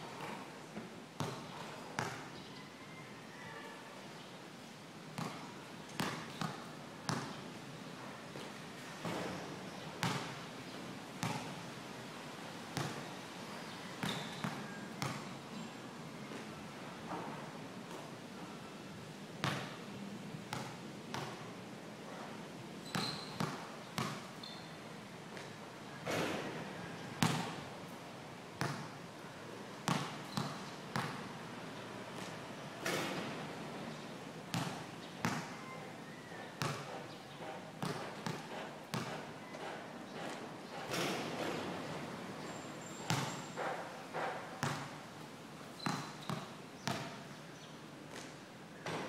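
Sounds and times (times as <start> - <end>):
basketball bouncing on concrete: 1.2 - 1.4, 27.2 - 27.5, 34.5 - 35.4, 36.6 - 39.7, 43.1 - 44.9.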